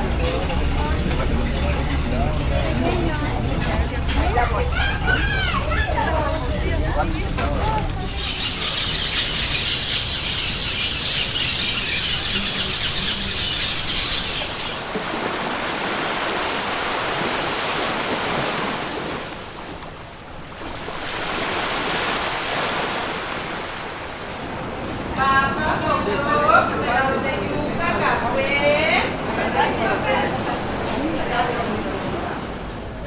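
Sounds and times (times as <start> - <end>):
birds squealing: 6.8 - 15.0
surf breaking: 14.3 - 27.1.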